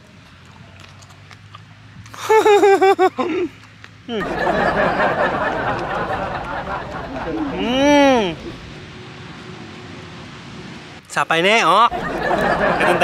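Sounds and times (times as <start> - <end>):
person laughing: 2.2 - 8.7, 11.9 - 13.0
dense muffled noise: 4.1 - 11.0.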